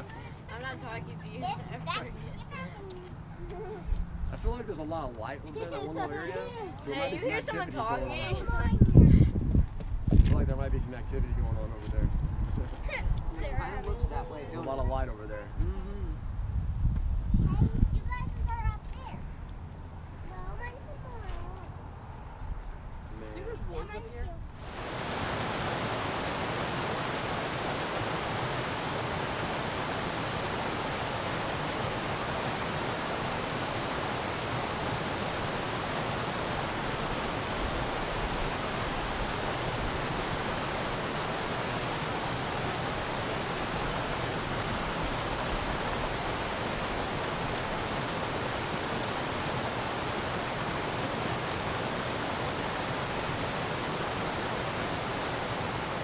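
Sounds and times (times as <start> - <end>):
creek cascading over rocks: 24.6 - 56.0.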